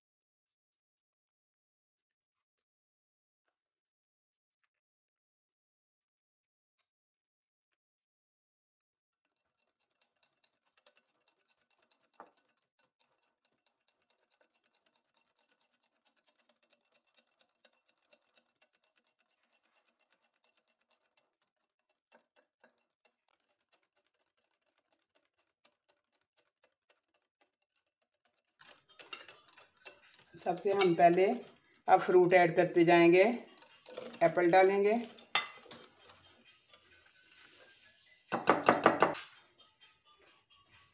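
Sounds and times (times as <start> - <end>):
faint ticks and scratches: 9.2 - 40.9.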